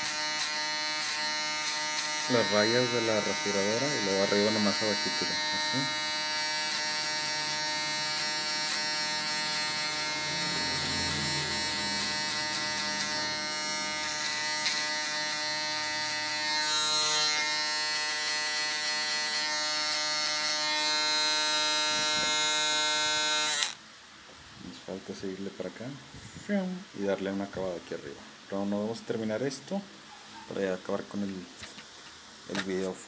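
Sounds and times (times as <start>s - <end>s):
electric shaver buzzing: 0.0s - 23.8s.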